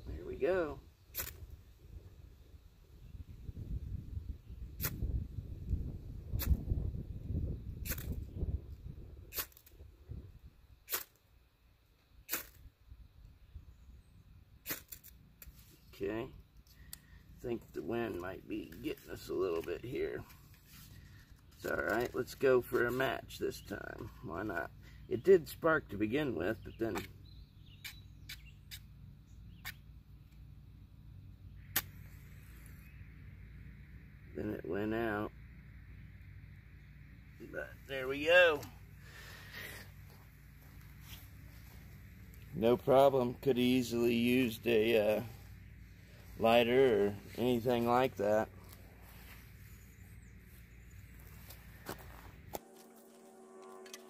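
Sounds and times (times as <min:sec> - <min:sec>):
wind rumble on microphone: 0:00.0 - 0:10.8.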